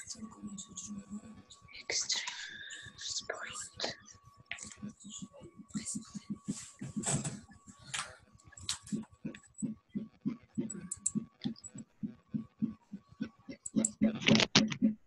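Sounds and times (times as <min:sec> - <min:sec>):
keyboard typing clicks: 0:10.6 - 0:11.8, 0:13.5 - 0:15.0.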